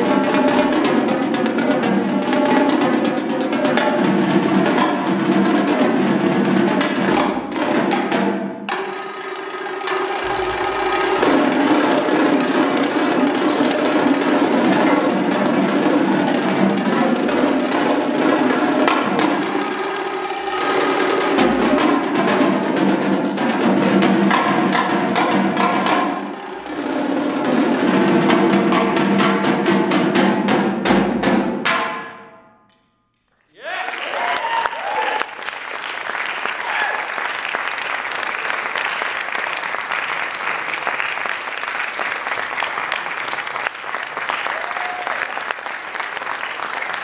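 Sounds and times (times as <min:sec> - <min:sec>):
marching tenor drums: 0:00.0 - 0:31.9.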